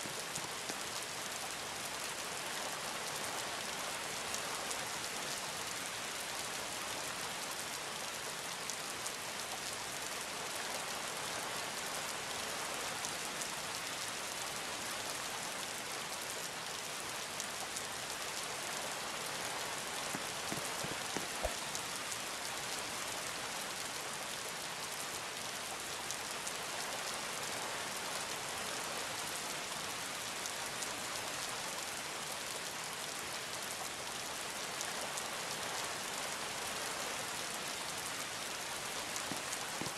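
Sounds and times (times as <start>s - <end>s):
steady rain hiss: 0.0s - 39.9s
raindrop ticks: 19.5s - 21.9s, 39.1s - 39.9s.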